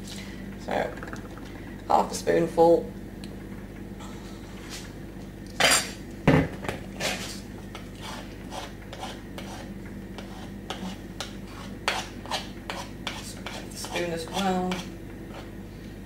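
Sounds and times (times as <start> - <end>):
spoon scraping batter in bowl: 7.0 - 15.5.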